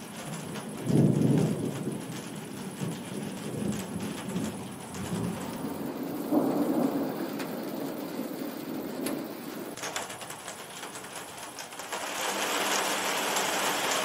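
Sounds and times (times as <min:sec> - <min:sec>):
rolling thunder: 0:00.0 - 0:10.4
steady rain: 0:00.0 - 0:14.0.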